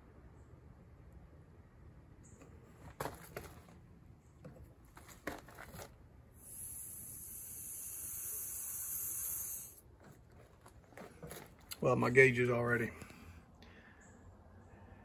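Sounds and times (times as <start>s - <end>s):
refrigerant hissing: 6.4s - 11.5s.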